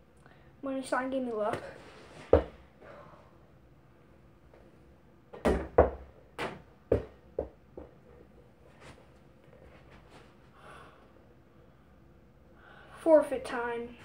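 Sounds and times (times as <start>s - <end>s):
small ball bouncing: 5.3s - 8.0s.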